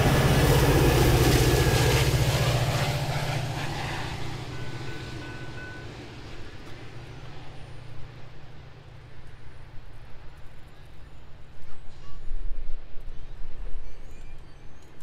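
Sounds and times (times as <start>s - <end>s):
steady low drone: 0.0s - 8.4s
train rumbling: 0.0s - 15.0s.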